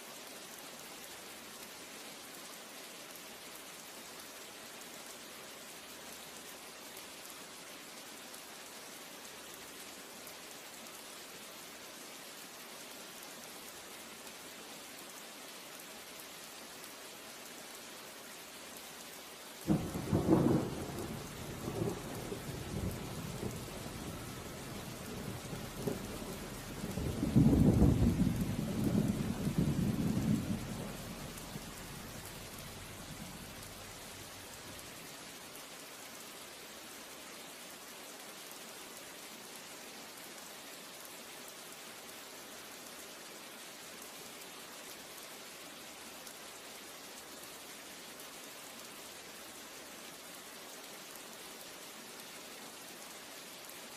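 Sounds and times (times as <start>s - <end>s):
steady rain: 0.0s - 53.9s
thunder rumbling: 19.7s - 33.9s.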